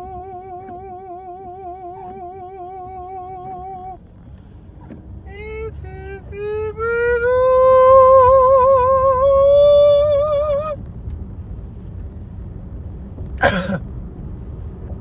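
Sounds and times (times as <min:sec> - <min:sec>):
man singing high note: 0:00.0 - 0:04.0, 0:05.3 - 0:10.8
car cabin road rumble: 0:00.0 - 0:15.0.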